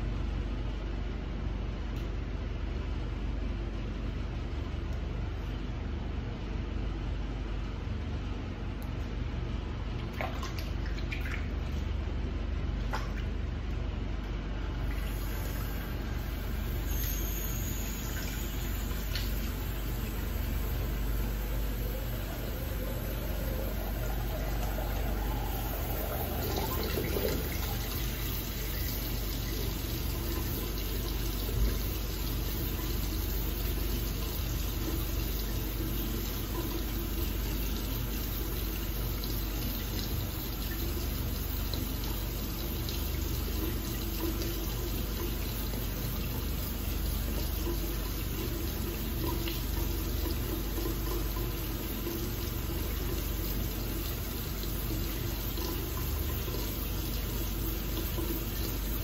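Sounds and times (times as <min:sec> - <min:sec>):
constant low hum: 0:00.0 - 0:59.0
tap water running into sink: 0:14.8 - 0:59.0.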